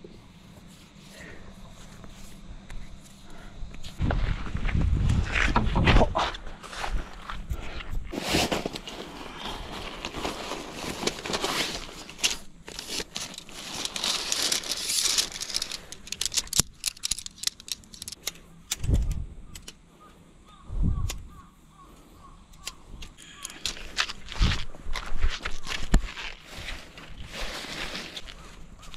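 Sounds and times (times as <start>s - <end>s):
nylon tent fabric rustling: 8.1s - 15.8s, 24.3s - 28.9s
metal tent poles clicking: 11.3s - 19.8s.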